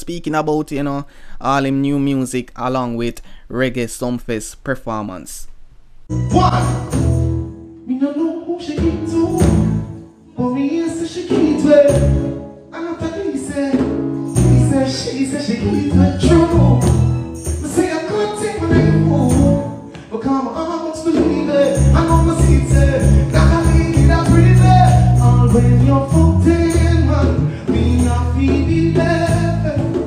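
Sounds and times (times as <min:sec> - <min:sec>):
reggae backing track: 0:06.0 - 0:08.0, 0:08.6 - 0:30.0
man singing into microphone: 0:06.3 - 0:06.9, 0:07.8 - 0:09.7, 0:10.4 - 0:30.0.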